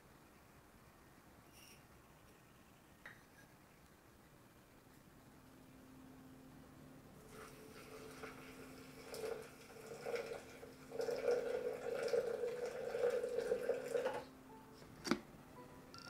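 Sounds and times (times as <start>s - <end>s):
water pouring from kettle: 7.2s - 14.3s.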